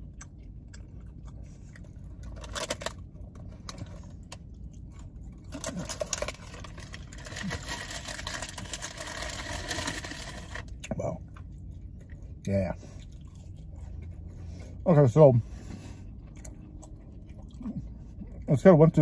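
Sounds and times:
person chewing: 0.0 - 8.0, 11.3 - 14.7, 15.7 - 18.5.

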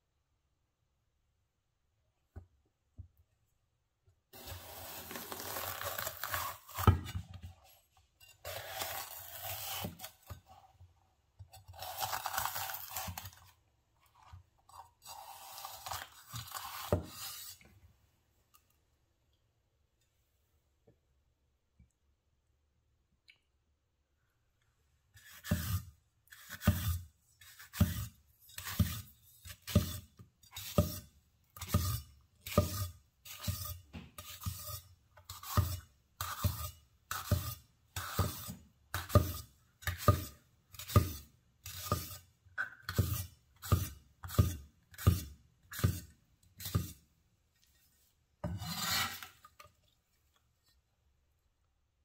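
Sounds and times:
knife blade scraping board: 25.2 - 42.2, 42.9 - 47.0, 48.4 - 49.6
knife slicing pepper on board: 25.2 - 47.0.

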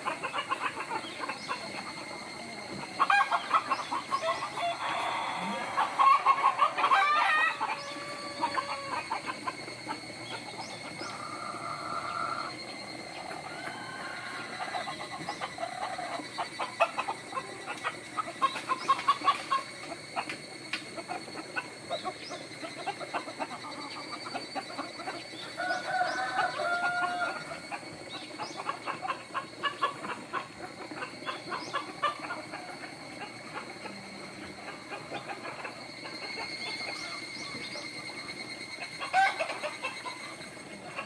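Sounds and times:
chickens clucking: 0.0 - 41.0
chicken two-part call: 2.7 - 12.5.

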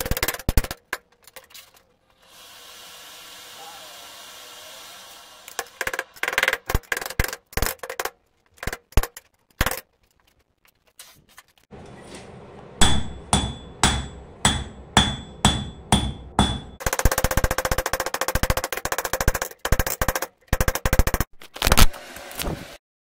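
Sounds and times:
steady hiss: 2.2 - 5.5
hammer striking steel on anvil: 12.8 - 16.8.

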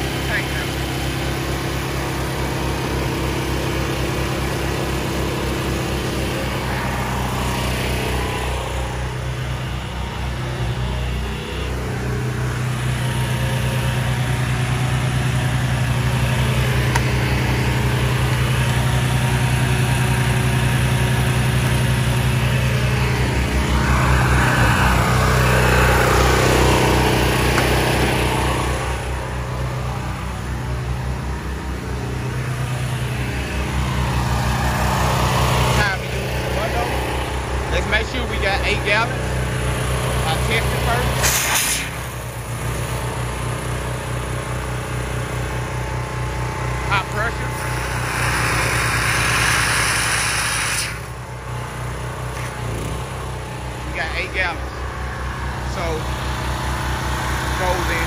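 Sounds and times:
pressure washer engine running: 0.0 - 58.0
loud rushing noise: 22.4 - 29.4, 41.1 - 42.4, 47.4 - 51.2.

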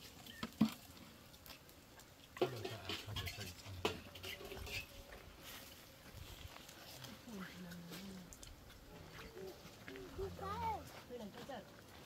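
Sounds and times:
metal bowls clinking: 2.4 - 5.0.

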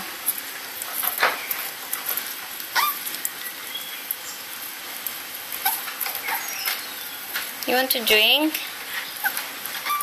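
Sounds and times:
dog whining: 2.7 - 3.1, 5.6 - 6.7, 9.2 - 10.0.

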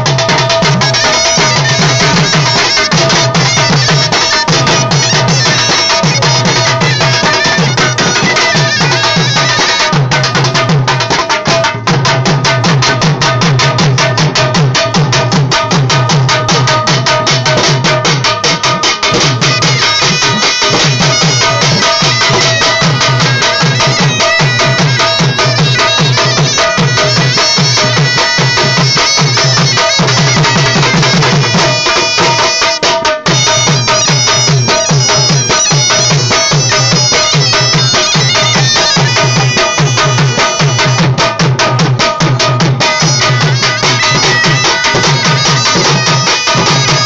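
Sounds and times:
drums beating dance rhythm: 0.0 - 47.0
shrill reed pipe melody: 0.3 - 10.0, 19.1 - 41.4, 42.8 - 47.0.

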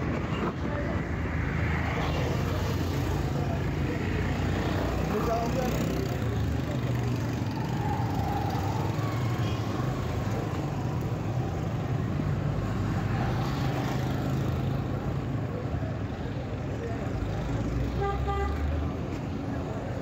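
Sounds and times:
car engines: 0.0 - 20.0
motorcycle engines: 0.0 - 20.0.

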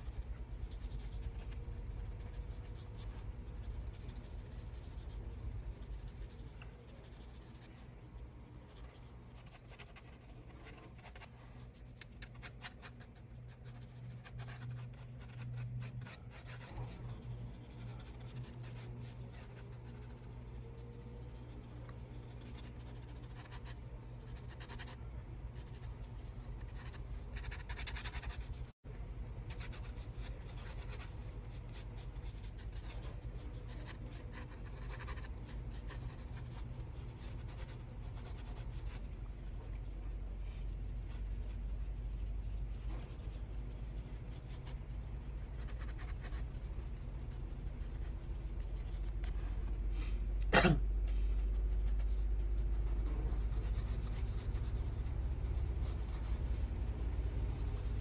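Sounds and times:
pencil scratching on paper: 0.0 - 28.7, 29.5 - 49.4, 51.4 - 56.6
steady low hum: 0.0 - 58.0.

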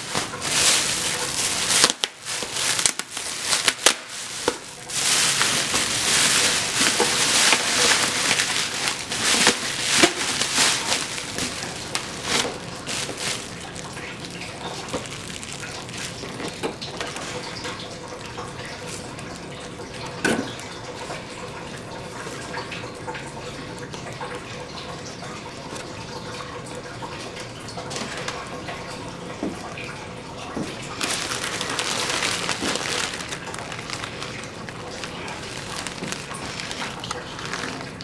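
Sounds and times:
plastic packaging crinkling: 0.0 - 19.6, 27.9 - 28.6, 30.8 - 38.0.

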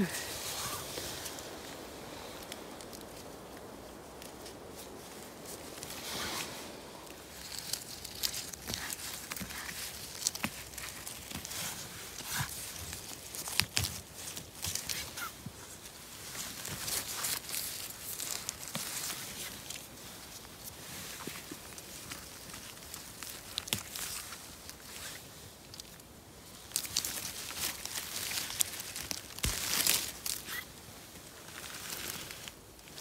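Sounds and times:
hand rustling through pine needles: 0.0 - 33.0
twigs snapping: 0.8 - 15.6, 16.3 - 30.8.

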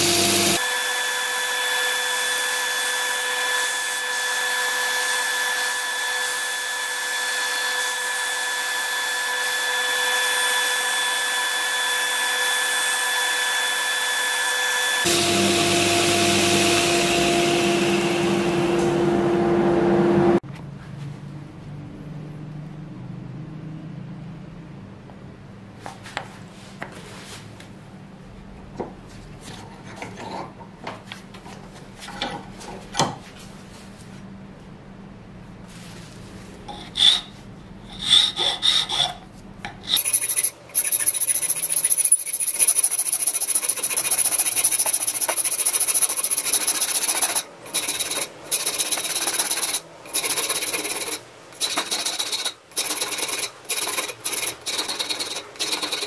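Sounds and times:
file rasping on wood: 37.9 - 39.2, 39.8 - 56.0.

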